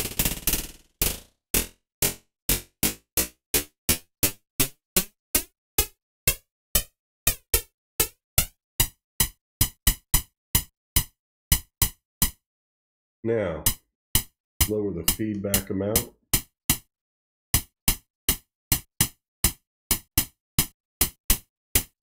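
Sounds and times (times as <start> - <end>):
synthesized snare drum hits: 14.6 - 16.1.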